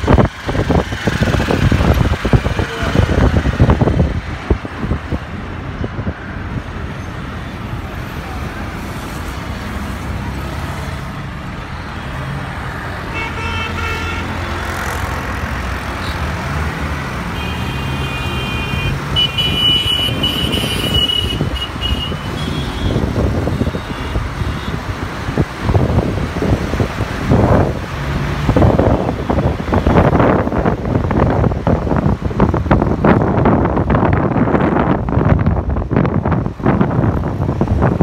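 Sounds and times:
wind buffeting microphone: 0.0 - 6.9, 19.3 - 38.0
road and traffic noise: 0.0 - 38.0
vehicle horns honking: 13.0 - 14.6, 17.3 - 24.8.

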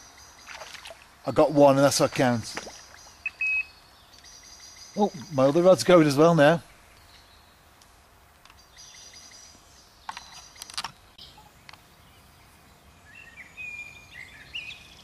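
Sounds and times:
birds chirping: 0.0 - 15.0
whistled bird call: 3.2 - 3.8.

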